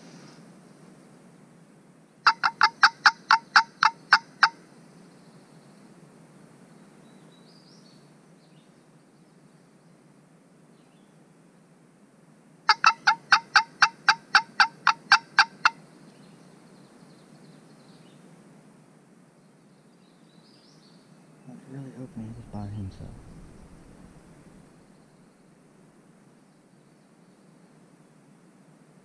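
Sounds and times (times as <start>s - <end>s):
turkey yelping: 2.3s - 4.6s, 12.7s - 15.7s.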